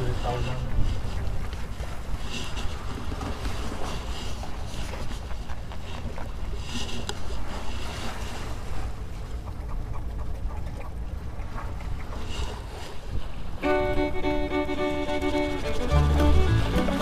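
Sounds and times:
sea and surf hiss: 0.0s - 5.2s, 5.8s - 9.1s, 12.2s - 17.0s
wind buffeting microphone: 0.0s - 17.0s.

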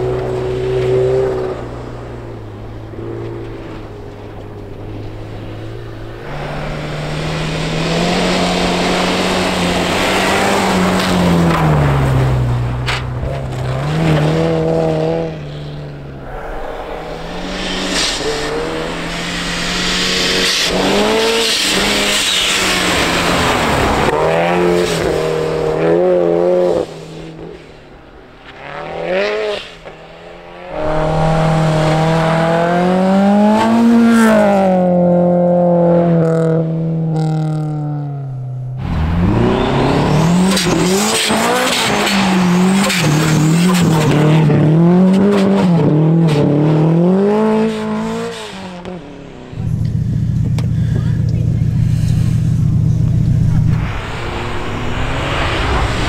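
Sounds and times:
rally car engines revving: 0.0s - 56.0s.

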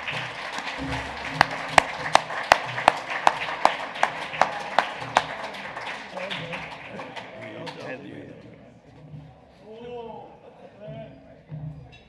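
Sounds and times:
loud sharp close claps: 0.0s - 7.8s
audience applauding: 0.0s - 8.0s.

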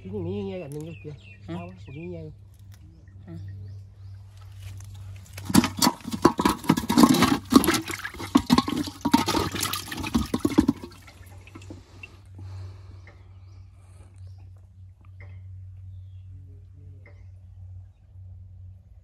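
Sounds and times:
water splashing in metal pot: 5.3s - 12.1s.

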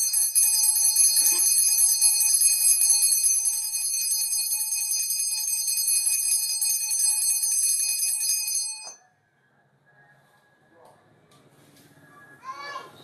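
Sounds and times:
hand bells ringing: 0.0s - 9.0s.

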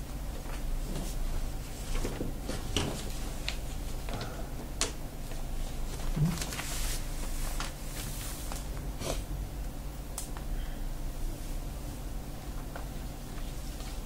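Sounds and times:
steady low hum: 0.0s - 14.0s
paper rustling: 5.3s - 8.8s.

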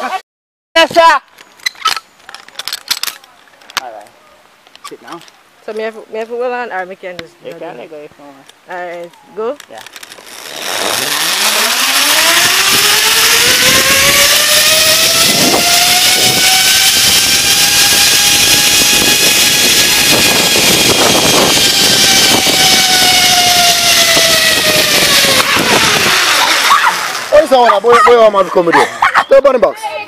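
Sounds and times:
zip line trolley whining: 9.8s - 29.1s
wind rush on microphone: 10.3s - 27.5s.

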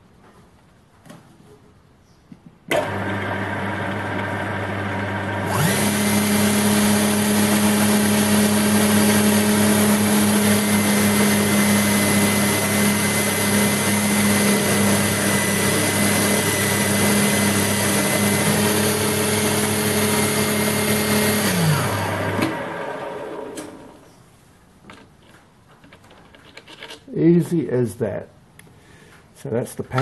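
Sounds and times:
grinder motor hum and whine: 2.8s - 24.0s.

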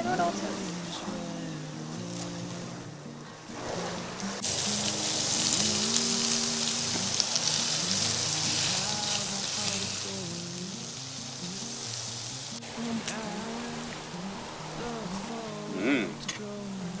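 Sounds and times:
quiet background music: 0.0s - 17.0s
meat sizzling on grill pan: 4.4s - 12.5s.

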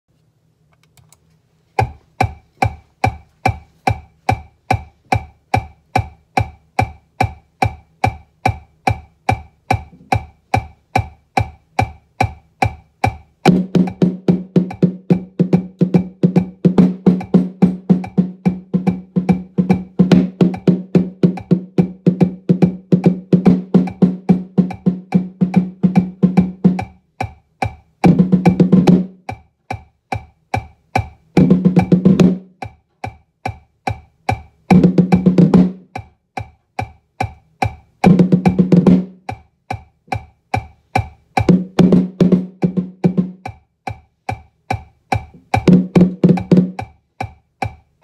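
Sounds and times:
marching bass drum: 1.8s - 47.9s
metronome clicking: 1.8s - 48.0s.

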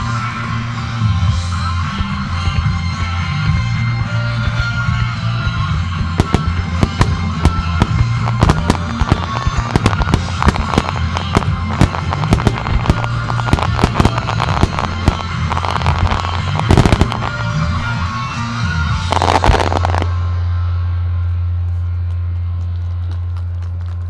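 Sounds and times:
background music with low bass: 0.0s - 24.0s
firework shells bursting: 6.2s - 17.9s, 19.1s - 20.1s.

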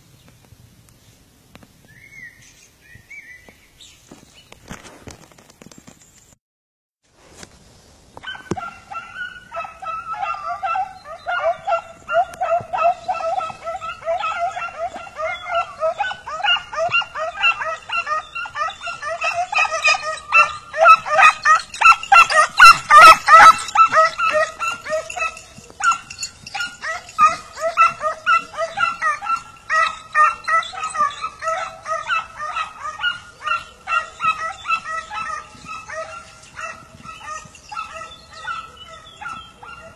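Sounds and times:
hunting dogs yelping and baying: 8.2s - 39.9s.

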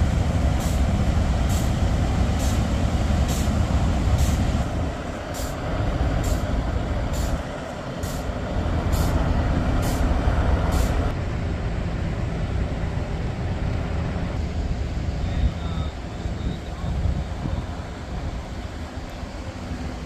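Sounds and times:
diesel engines rumbling: 0.0s - 20.0s
short hiss: 8.0s - 8.3s, 10.7s - 11.1s.

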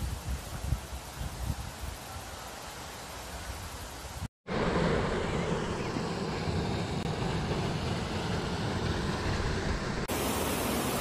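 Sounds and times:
waterfall rushing: 10.1s - 11.0s.

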